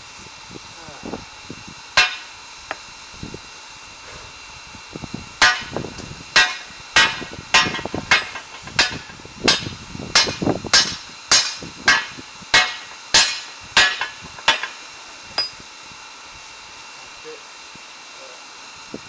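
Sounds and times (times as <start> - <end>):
hammer striking metal on anvil: 2.0 - 2.3, 5.4 - 5.7, 6.4 - 14.8, 15.4 - 15.6.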